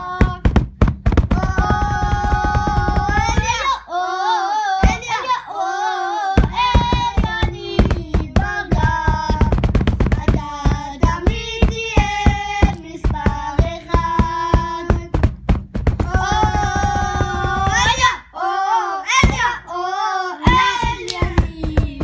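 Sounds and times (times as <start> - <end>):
children singing: 0.0 - 0.4, 1.3 - 9.5, 16.0 - 22.0
percussive hits: 0.0 - 3.7, 4.8 - 5.2, 6.4 - 18.2, 19.2 - 19.6, 20.5 - 22.0.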